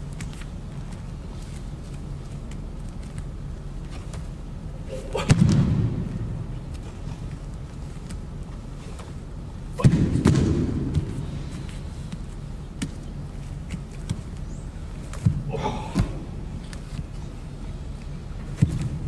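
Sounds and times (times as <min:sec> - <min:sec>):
person shouting: 0:15.5 - 0:16.2.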